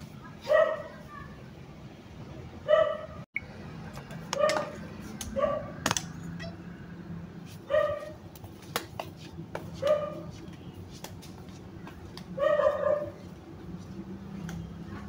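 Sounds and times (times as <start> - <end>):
dog barking: 0.4 - 1.0, 2.7 - 3.2, 5.4 - 5.8, 7.7 - 8.2, 9.8 - 10.2, 12.4 - 13.2.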